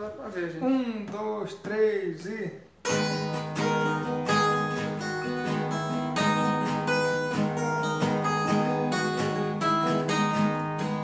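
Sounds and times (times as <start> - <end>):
acoustic guitars strummed: 2.8 - 11.0.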